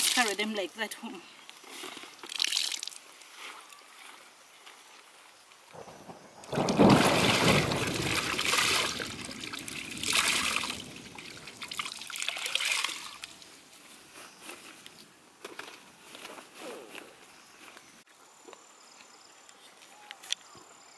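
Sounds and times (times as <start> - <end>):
water dripping: 2.2 - 3.0, 6.4 - 13.5
water splashing into plastic basin: 2.3 - 3.0, 6.5 - 13.4.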